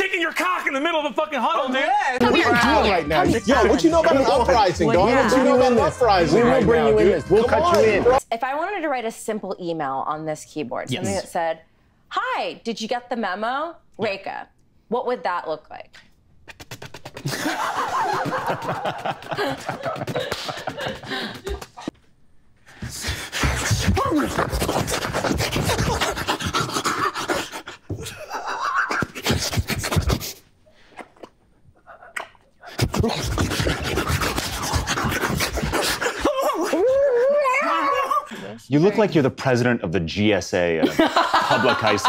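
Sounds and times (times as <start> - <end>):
people laughing hard: 17.2 - 21.9, 28.0 - 29.2, 40.8 - 42.0
wavering vocal moan: 32.8 - 38.6.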